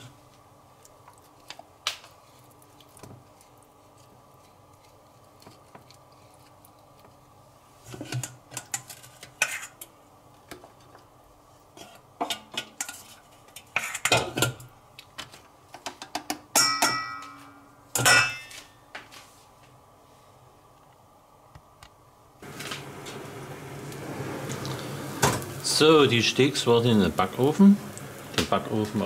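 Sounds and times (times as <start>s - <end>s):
metal kitchenware clattering: 16.5s - 18.7s.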